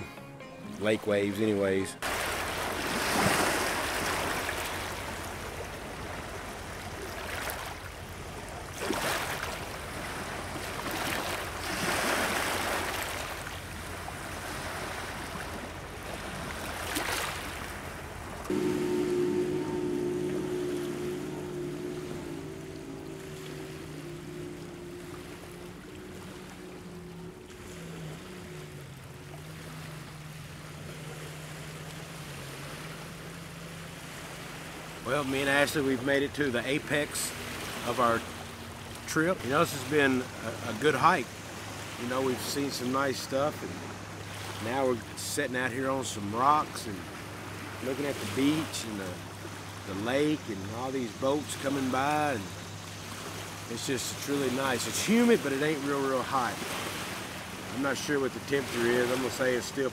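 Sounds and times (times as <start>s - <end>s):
waves crashing against rocks: 2.0s - 7.9s, 8.6s - 17.8s, 53.1s - 59.9s
distant motorboat engine drone: 2.0s - 59.9s.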